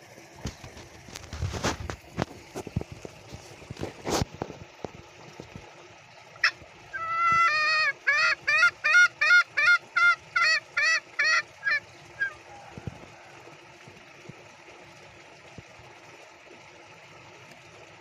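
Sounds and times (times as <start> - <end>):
junglefowl cackling call: 6.4 - 13.4.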